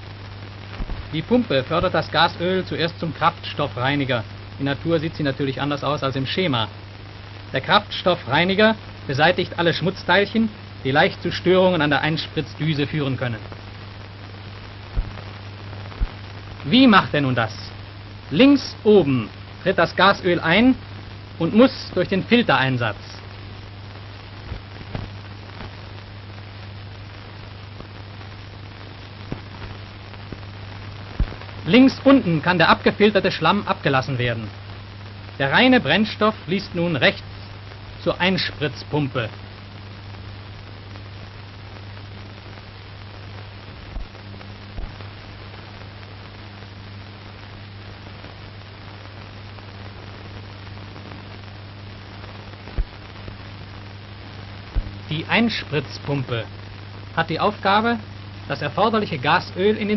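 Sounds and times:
background hiss and hum: 0:00.0 - 0:59.9
short pops: 0:24.4 - 0:25.8, 0:29.2 - 0:30.5, 0:31.1 - 0:31.6, 0:52.6 - 0:53.3.

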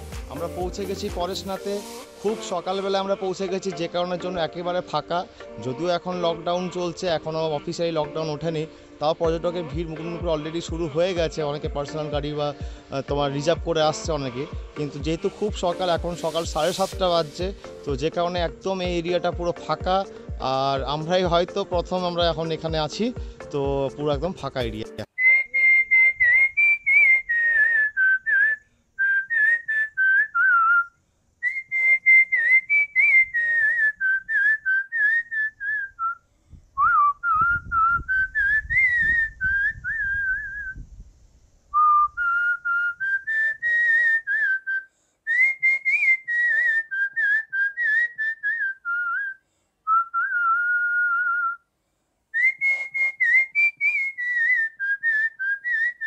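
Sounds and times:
person whistling a melody: 0:16.0 - 0:17.4, 0:25.1 - 0:36.2, 0:36.8 - 0:40.8, 0:41.8 - 0:51.7, 0:52.4 - 0:56.0.

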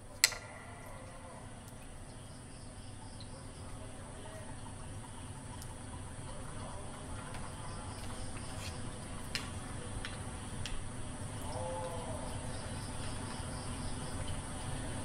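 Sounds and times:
insects chirping: 0:00.0 - 0:15.0
sharp clicks: 0:00.1 - 0:01.9.

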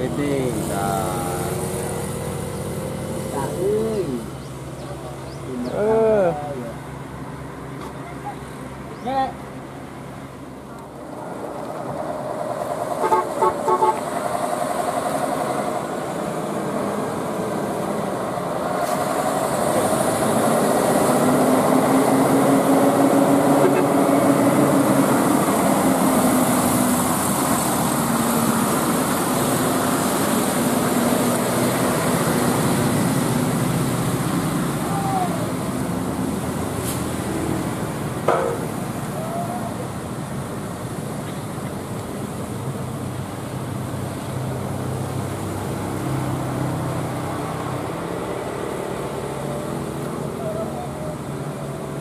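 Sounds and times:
diesel truck engine drone: 0:00.0 - 0:52.0
short horn toots: 0:23.6 - 0:24.0.

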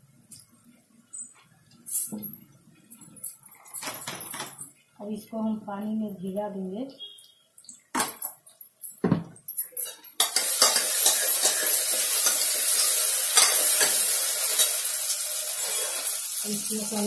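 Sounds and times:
spoon clinking steel bowl: 0:09.6 - 0:14.8
loud sizzle of frying: 0:09.8 - 0:17.0.

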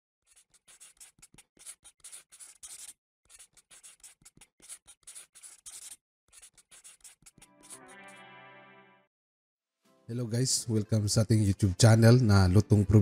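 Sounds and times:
marker scratching strokes: 0:00.2 - 0:08.2.

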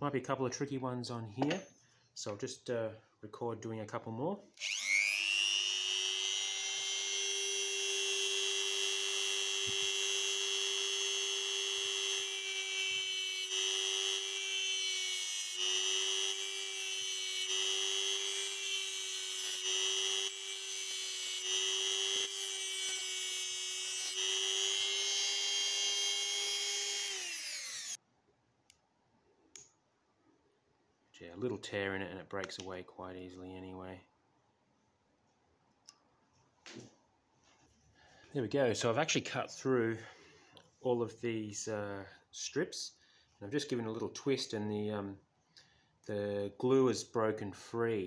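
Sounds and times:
rotary tool cutting metal whine: 0:04.6 - 0:28.0.

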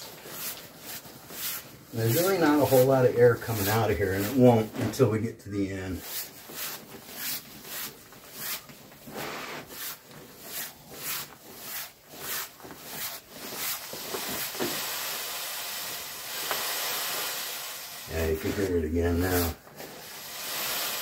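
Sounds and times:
sleeping pad fabric rubbing: 0:00.0 - 0:05.0, 0:06.1 - 0:14.8
air hissing from valve: 0:14.2 - 0:21.0.

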